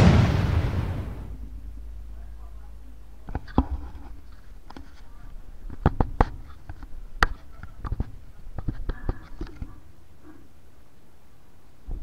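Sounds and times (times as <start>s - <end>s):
low rumble: 0.0s - 3.2s.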